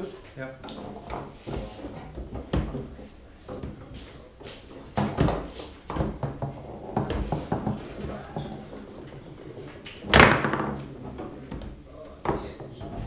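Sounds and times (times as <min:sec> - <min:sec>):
foosball rods knocking: 0:00.6 - 0:04.0, 0:04.8 - 0:09.3, 0:10.0 - 0:13.0
foosball clacking: 0:05.0 - 0:13.0
loud hard bang: 0:10.1 - 0:10.8.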